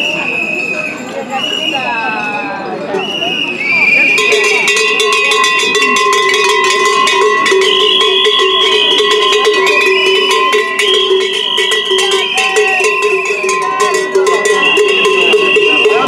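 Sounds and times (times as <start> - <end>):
cowbells clanging: 3.9 - 16.0.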